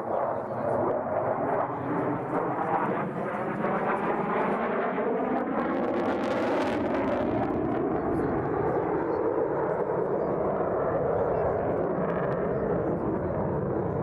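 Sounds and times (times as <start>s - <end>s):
jet flying past: 0.0s - 14.0s.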